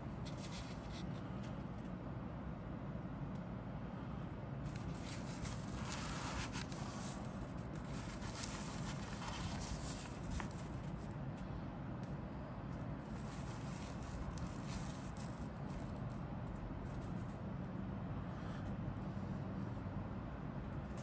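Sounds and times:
steady low hum: 0:00.0 - 0:21.0
paper rustling and crinkling: 0:00.2 - 0:01.1, 0:04.7 - 0:11.1, 0:13.1 - 0:15.9.

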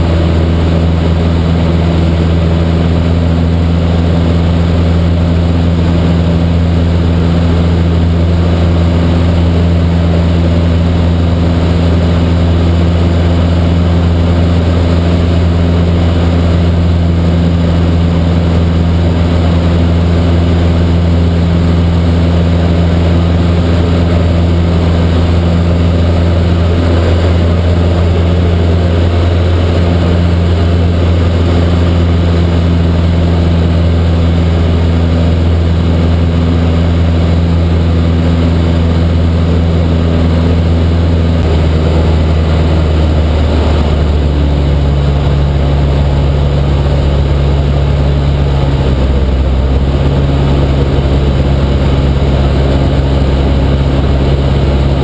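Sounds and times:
airplane engine hum in cabin: 0:00.0 - 0:55.0.

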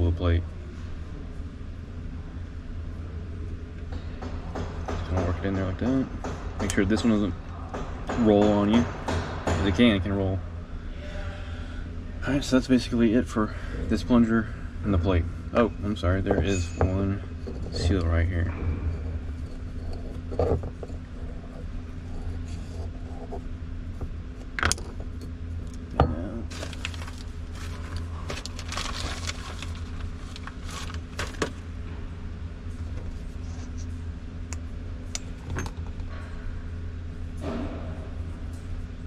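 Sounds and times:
steady low hum: 0:00.0 - 0:39.0
metal parts clicking and knocking: 0:24.4 - 0:25.8, 0:35.1 - 0:36.1
rustling: 0:26.5 - 0:31.6.

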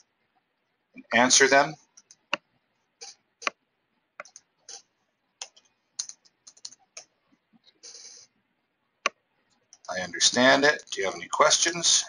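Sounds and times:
mouse clicks: 0:04.2 - 0:04.5, 0:05.4 - 0:07.1
keyboard keystrokes: 0:05.4 - 0:07.1.

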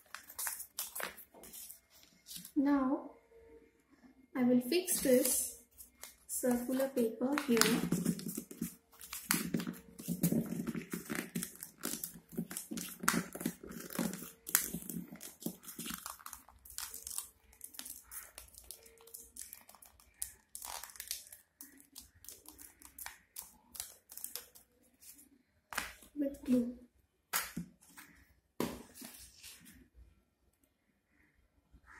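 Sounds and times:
crumpled paper crinkling: 0:00.0 - 0:02.6, 0:04.9 - 0:25.2.

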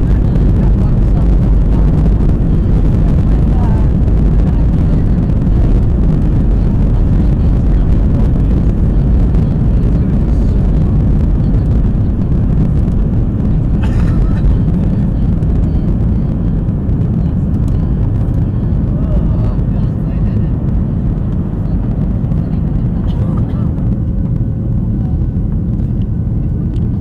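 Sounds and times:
jet engines at take-off: 0:00.0 - 0:27.0
runway roll rumble: 0:00.0 - 0:27.0.

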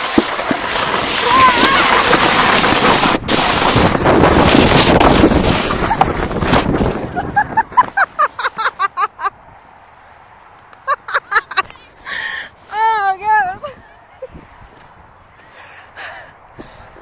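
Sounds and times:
sled sliding over snow: 0:00.0 - 0:09.3
wind rushing on microphone: 0:00.2 - 0:08.3, 0:13.2 - 0:15.2
person laughing: 0:07.0 - 0:09.4, 0:10.8 - 0:12.4.

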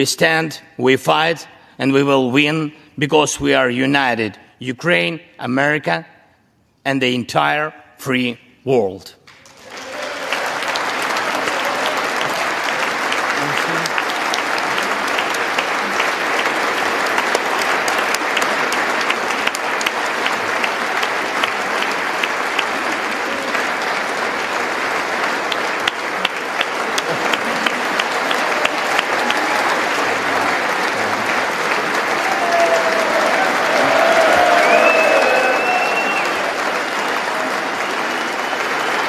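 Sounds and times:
audience applauding: 0:09.3 - 0:39.0.

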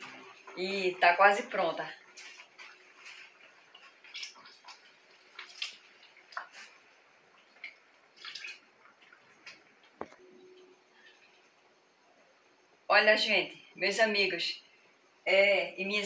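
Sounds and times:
milk splashing into a pot: 0:02.0 - 0:10.2.

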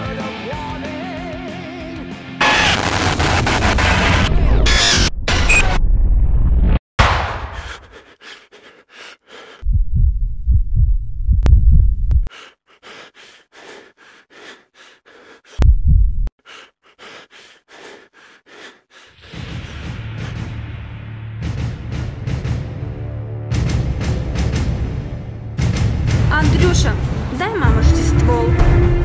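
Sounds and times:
person panting while running: 0:07.5 - 0:09.6, 0:12.2 - 0:15.7, 0:16.4 - 0:19.2
loud deep rumble: 0:09.6 - 0:12.3, 0:15.6 - 0:16.3
steady low hum: 0:09.7 - 0:12.3.

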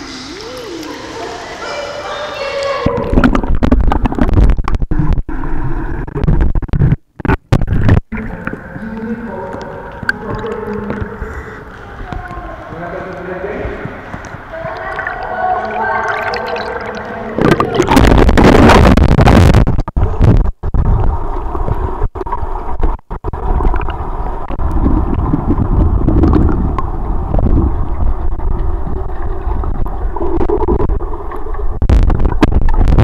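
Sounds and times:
muffled underwater rumble: 0:00.0 - 0:33.0
water splash: 0:13.6 - 0:33.0.

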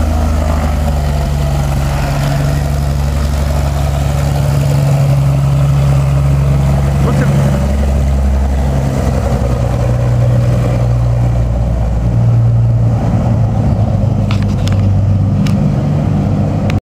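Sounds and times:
propeller plane engine drone: 0:00.0 - 0:16.8.

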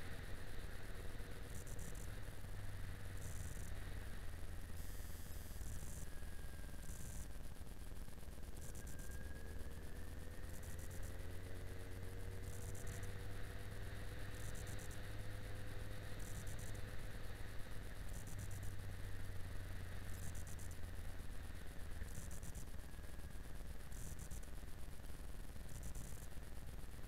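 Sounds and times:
motorcycle engine running: 0:08.0 - 0:27.0.

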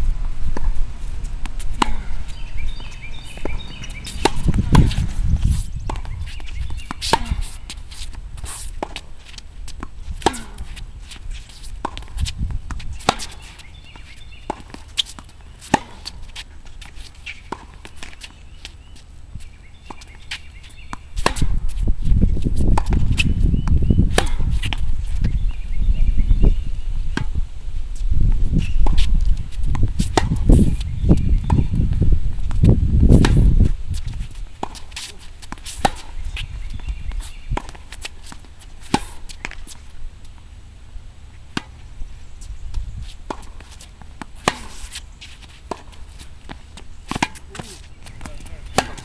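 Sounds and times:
wind rumble on microphone: 0:00.0 - 0:08.5, 0:12.1 - 0:13.1, 0:21.2 - 0:34.6, 0:36.1 - 0:37.8, 0:42.0 - 0:43.2
tennis balls struck and bouncing: 0:01.4 - 0:19.0, 0:19.7 - 0:25.3, 0:27.1 - 0:27.4, 0:28.8 - 0:40.4, 0:41.3 - 0:49.0.

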